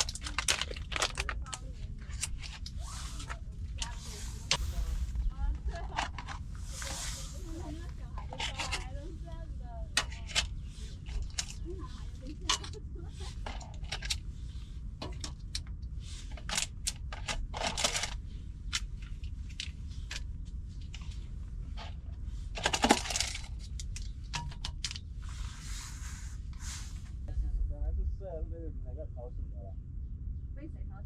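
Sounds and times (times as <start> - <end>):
foil and plastic packets crinkling: 0.0 - 4.6.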